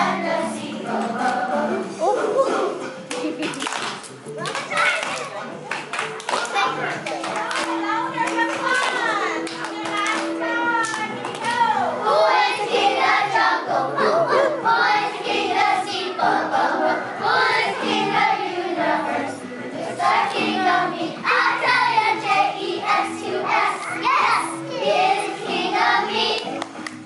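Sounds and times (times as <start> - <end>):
children singing together: 0.0 - 2.0, 11.8 - 26.6
musical accompaniment: 0.0 - 27.0.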